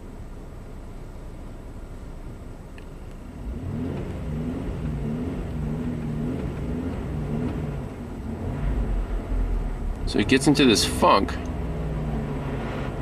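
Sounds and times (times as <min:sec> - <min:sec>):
car engine revving: 0:03.2 - 0:13.0.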